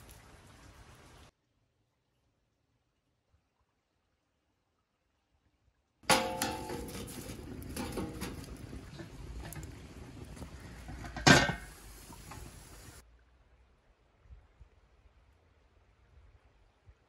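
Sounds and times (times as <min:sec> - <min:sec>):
cast-iron cauldron clanking on stove: 0:06.0 - 0:12.6
wood fire crackling in stove: 0:06.0 - 0:13.0
metal clang with short ring: 0:06.1 - 0:07.3.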